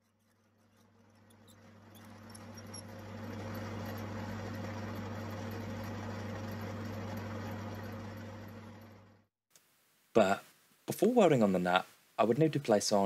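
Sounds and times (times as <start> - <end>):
drill boring steel: 0.0 - 9.0
lathe motor hum: 1.0 - 9.3.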